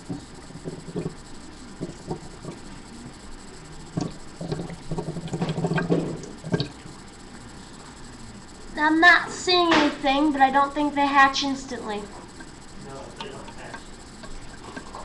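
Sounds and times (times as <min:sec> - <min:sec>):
plastic stirrer tapping and scraping: 0:00.0 - 0:01.2.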